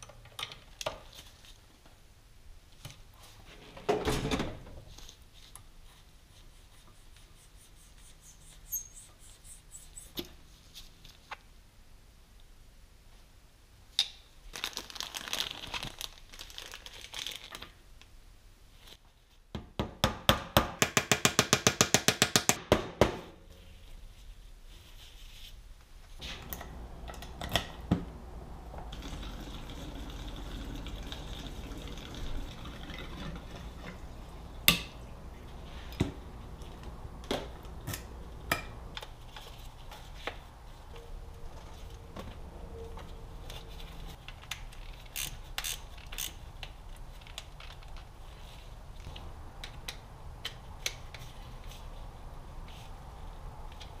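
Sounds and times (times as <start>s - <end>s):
ratchet wrench clicking: 45.1s - 46.4s.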